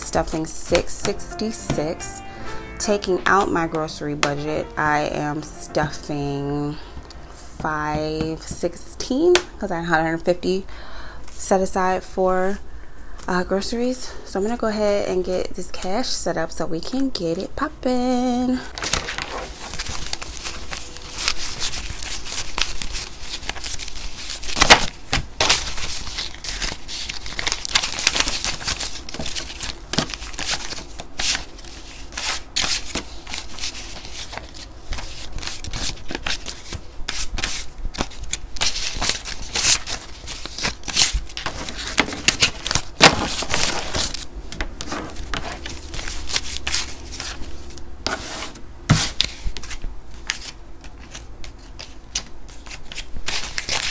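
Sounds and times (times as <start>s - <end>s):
banknotes rustling and crinkling: 18.6s - 53.9s.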